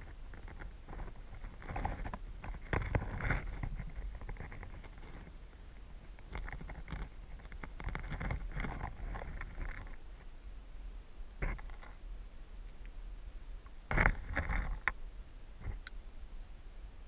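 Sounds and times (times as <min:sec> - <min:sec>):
clicks and crackles: 0:00.0 - 0:10.3, 0:11.4 - 0:12.0, 0:13.6 - 0:15.0, 0:15.6 - 0:16.0.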